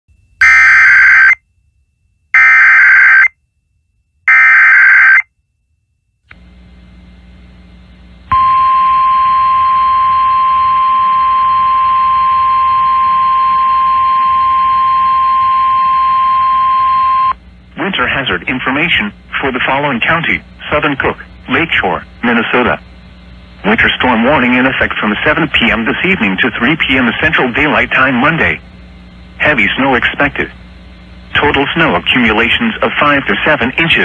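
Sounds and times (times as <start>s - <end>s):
steady alarm tone: 0.2s - 6.1s, 8.3s - 30.5s
faint radio static hiss: 17.4s - 34.0s.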